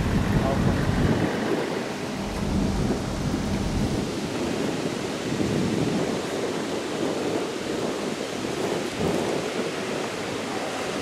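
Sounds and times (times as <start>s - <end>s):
ocean surf rushing: 0.0s - 11.0s
wind buffeting microphone: 0.0s - 11.0s.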